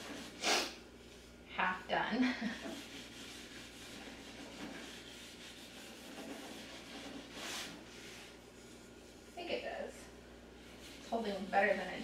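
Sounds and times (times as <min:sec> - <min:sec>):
hand rubbing on wood: 0:02.5 - 0:09.9, 0:10.5 - 0:12.0.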